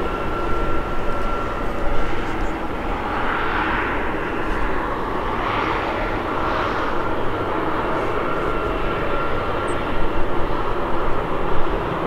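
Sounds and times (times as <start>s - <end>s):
jet engines running: 0.0s - 12.0s.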